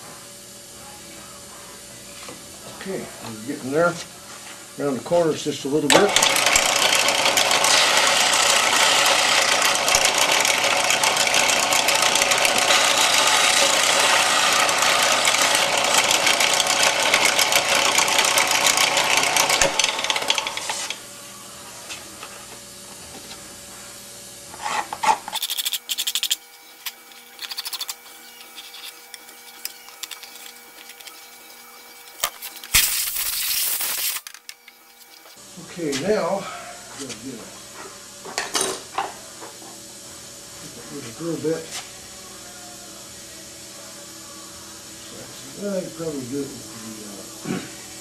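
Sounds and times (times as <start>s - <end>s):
steady hum: 0.0s - 6.0s, 8.2s - 48.0s
belt sander grinding plastic: 6.0s - 21.0s, 24.5s - 35.4s.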